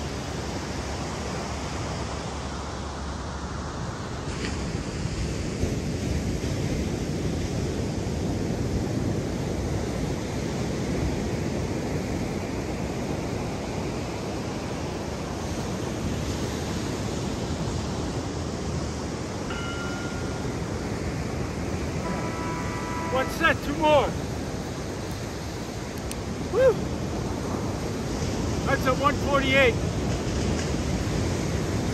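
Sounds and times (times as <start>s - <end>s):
ocean surf rushing: 0.0s - 31.9s
faint tone: 19.4s - 24.6s
wind noise on microphone: 29.8s - 31.9s.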